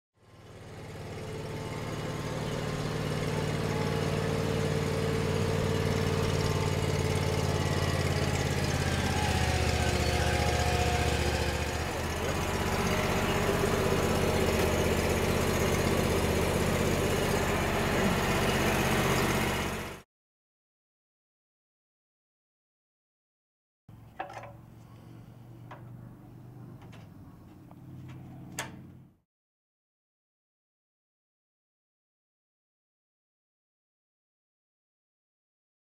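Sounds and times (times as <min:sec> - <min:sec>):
loader engine running: 0:00.2 - 0:20.0, 0:23.9 - 0:29.2.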